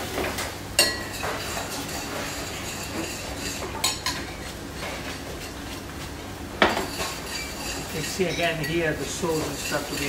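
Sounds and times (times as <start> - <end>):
metal utensil clinking on a pan: 6.9 - 10.0.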